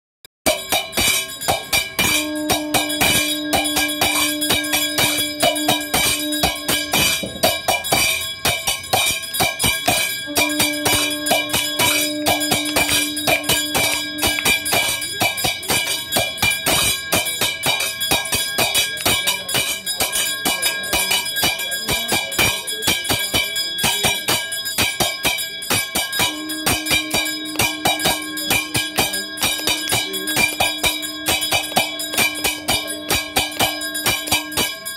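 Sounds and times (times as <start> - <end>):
bells ringing: 0.5 - 34.9
rapid percussion strokes: 0.5 - 34.9
long steady low tone: 1.4 - 17.3, 25.8 - 34.9.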